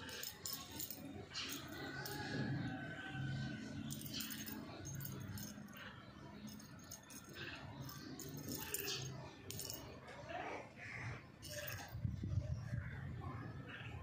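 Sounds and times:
small bell jingling: 0.0 - 2.4, 3.7 - 9.8, 11.4 - 12.0.

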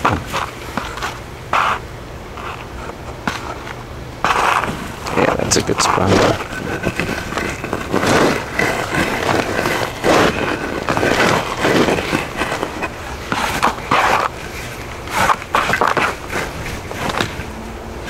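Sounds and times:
wooden stake scraping through soil: 4.2 - 17.5.

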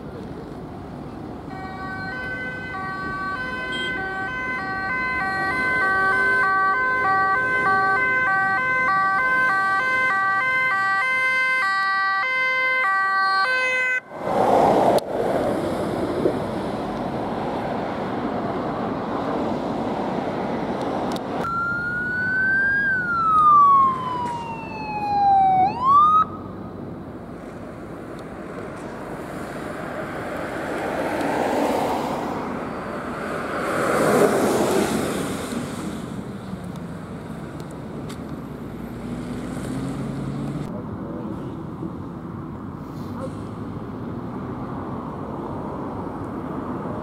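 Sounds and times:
vehicles driving past: 0.0 - 47.0
electronic siren wailing: 1.5 - 14.0, 21.4 - 26.4.

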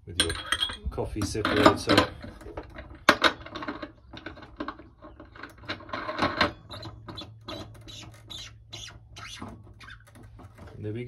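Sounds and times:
metal parts clinking and scraping: 0.0 - 7.0.

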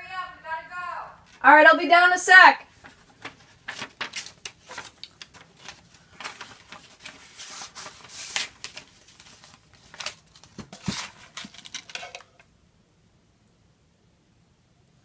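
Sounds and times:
paper rustling and crinkling: 2.7 - 12.4.

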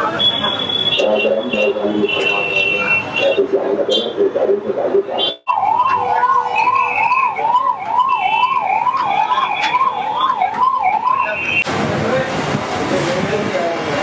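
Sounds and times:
siren wailing: 5.1 - 11.6.

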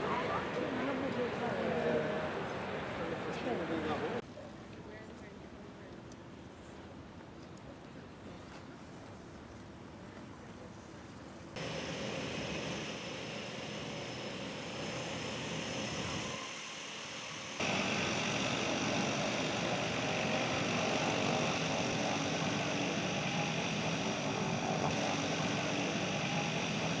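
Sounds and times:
propeller plane engines droning: 0.0 - 5.9, 11.6 - 27.0
harbour background noise: 0.0 - 27.0.

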